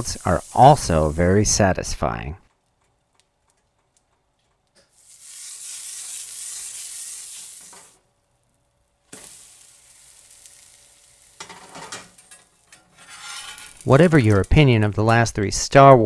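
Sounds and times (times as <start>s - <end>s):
batter sizzling in butter: 0.0s - 1.7s, 4.8s - 15.2s.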